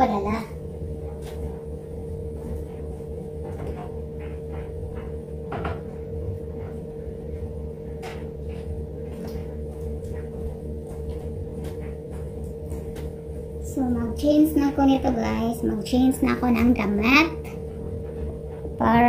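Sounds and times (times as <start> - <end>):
low hum: 0.0 - 19.0
knocks and clatters in a closet: 2.4 - 13.4.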